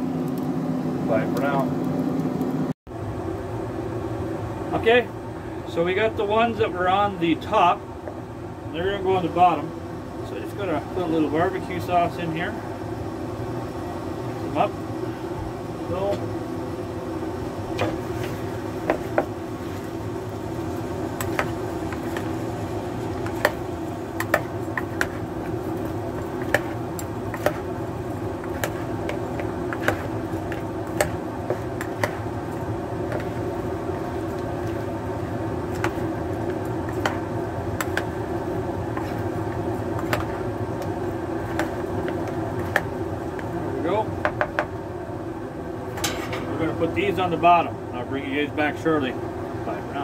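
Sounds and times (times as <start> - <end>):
fork scraping plastic bowl: 28.4 - 32.2.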